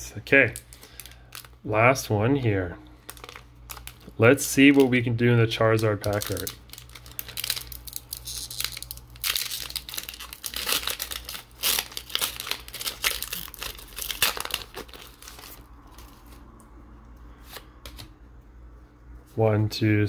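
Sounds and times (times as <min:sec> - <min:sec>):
foil wrapper tearing and crinkling: 0:00.5 - 0:01.6, 0:03.0 - 0:05.0, 0:05.7 - 0:16.4.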